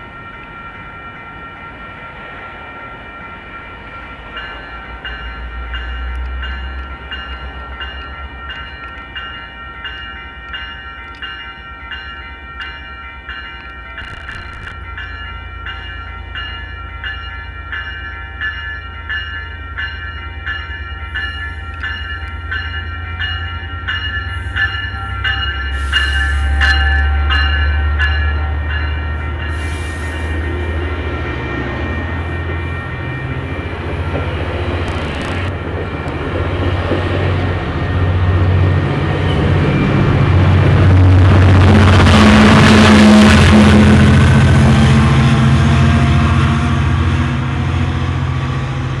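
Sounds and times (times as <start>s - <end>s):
warning bell ringing: 0.0s - 34.8s
rail noise: 0.0s - 49.0s
train coaches rolling past: 0.0s - 49.0s
diesel locomotive rumble: 13.3s - 49.0s.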